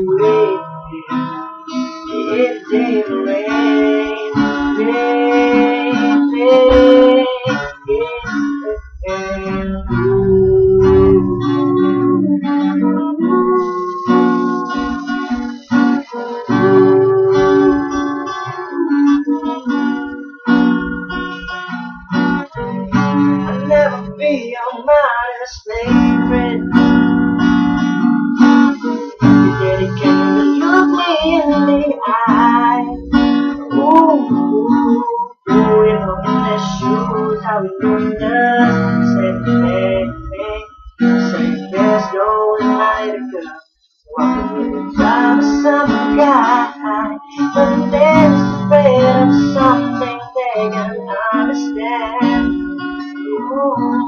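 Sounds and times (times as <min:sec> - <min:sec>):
man singing pop ballad: 0:00.0 - 0:20.8, 0:23.0 - 0:27.4, 0:28.8 - 0:54.0
acoustic guitar strumming: 0:00.0 - 0:54.0.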